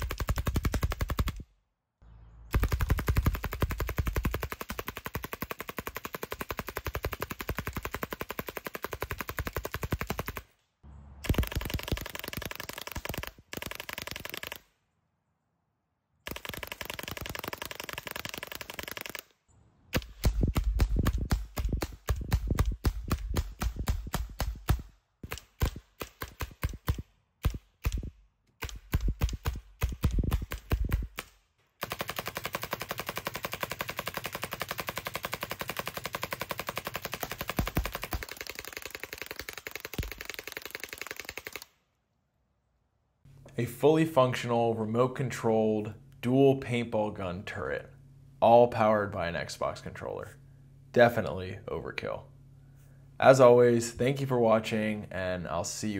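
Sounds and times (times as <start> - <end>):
paintball guns firing rapidly: 0.0 - 1.5, 2.5 - 10.5, 11.2 - 14.7, 16.2 - 19.3, 19.9 - 41.7.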